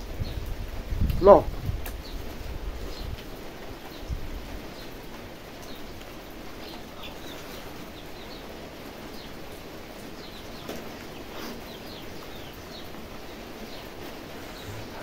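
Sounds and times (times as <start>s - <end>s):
small birds chirping: 0.0s - 15.0s
steady outdoor hiss: 0.0s - 15.0s.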